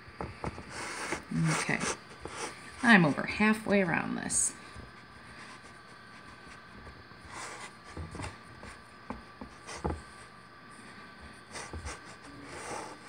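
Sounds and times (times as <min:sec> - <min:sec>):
crumbly pastry rustling: 0:04.6 - 0:13.0.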